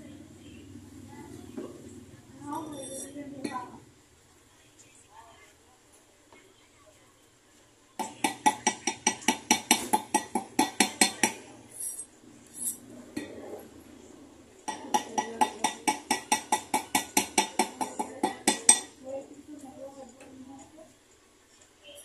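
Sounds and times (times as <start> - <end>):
hammer tapping metal ring: 14.7 - 19.0.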